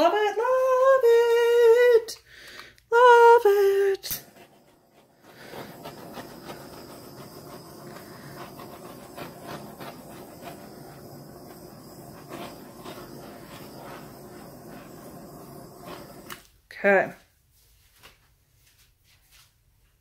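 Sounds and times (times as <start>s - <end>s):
torch flame hissing: 3.5s - 16.6s.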